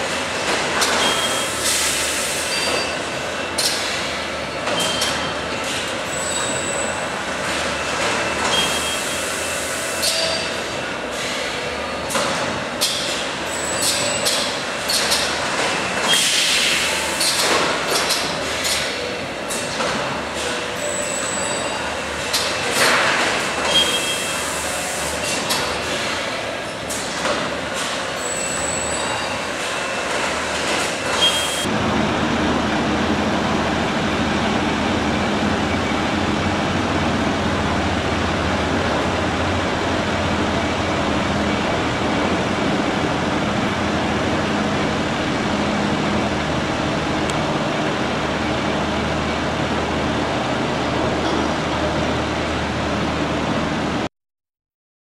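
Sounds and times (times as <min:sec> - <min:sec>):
mechanical clattering with clicks: 0:13.8 - 0:16.2.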